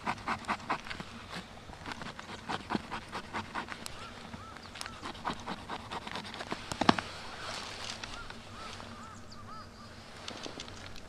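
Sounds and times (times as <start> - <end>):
knife scraping wood: 0.0 - 8.4.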